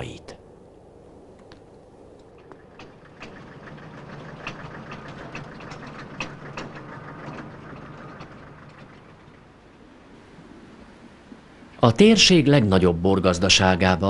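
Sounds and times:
sharp knocks and rattles: 2.2s - 10.2s
tractor engine running: 2.2s - 11.5s.

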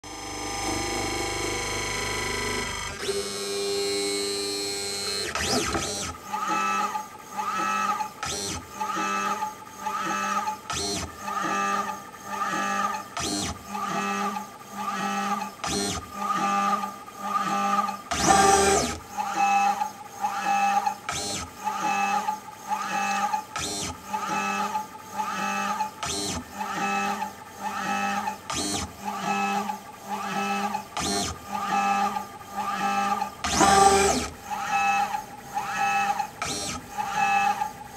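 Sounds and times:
short pitched motor whines: 17.4s - 19.0s, 26.1s - 37.7s.

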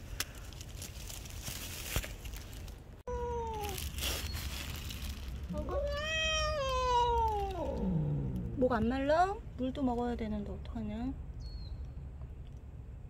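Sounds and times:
cat meowing: 5.5s - 8.6s.

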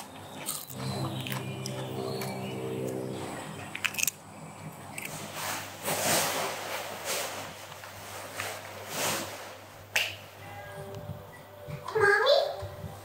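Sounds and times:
cat crunching fish crackers: 0.0s - 1.5s, 3.7s - 6.1s.

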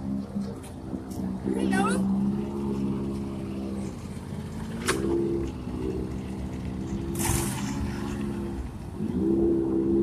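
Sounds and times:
riding mower engine running: 0.0s - 10.0s
mower churning through water: 2.0s - 9.8s.

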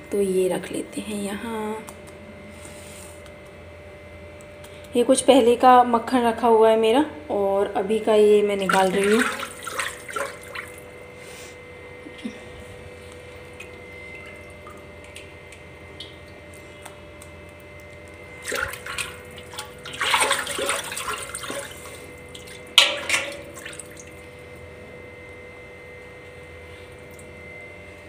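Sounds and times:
hand sloshing in buttermilk: 8.6s - 10.9s, 18.4s - 24.1s
sharp splash: 8.7s - 10.8s, 18.4s - 24.2s.

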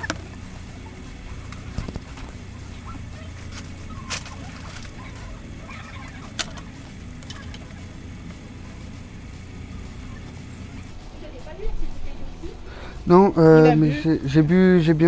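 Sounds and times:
handling clicks and ticks: 1.0s - 10.9s.

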